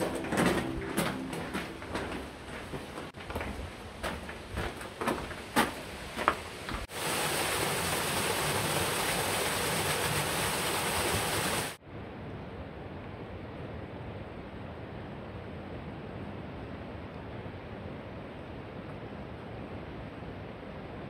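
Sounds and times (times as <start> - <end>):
footsteps crunching on gravel: 0.0 - 6.9
small waterfall splashing: 5.6 - 11.8.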